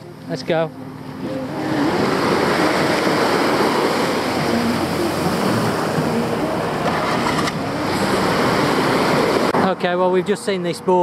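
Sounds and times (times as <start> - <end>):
waves washing on sandy beach: 0.2 - 11.0.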